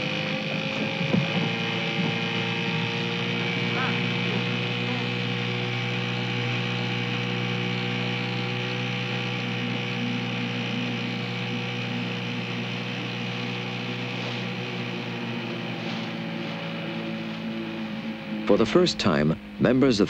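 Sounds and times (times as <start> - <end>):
outboard motor droning: 0.0 - 20.0.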